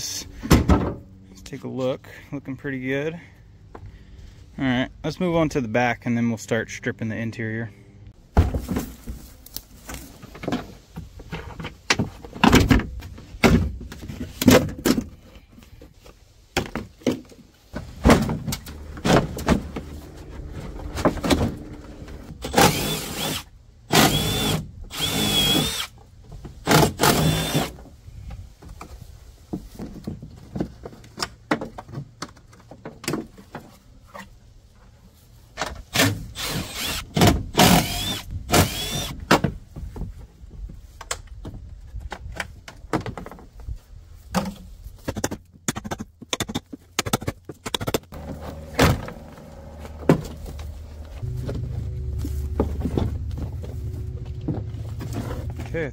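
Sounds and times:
power drill whining: 0:19.7 - 0:25.9, 0:27.0 - 0:27.7, 0:36.4 - 0:39.2.

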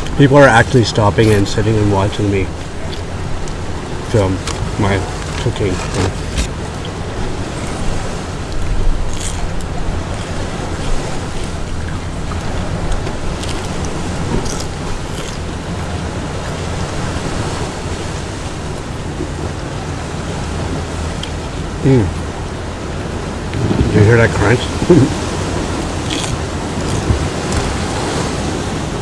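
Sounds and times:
ocean waves on rocks: 0:00.0 - 0:29.0
wind on microphone: 0:01.2 - 0:29.0
crunchy food being chewed: 0:08.5 - 0:15.9, 0:26.0 - 0:27.7.

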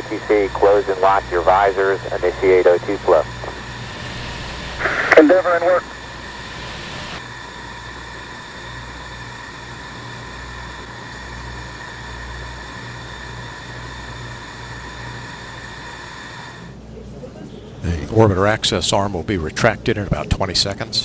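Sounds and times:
broadcast hiss and rumble: 0:00.0 - 0:07.2, 0:17.0 - 0:21.0.

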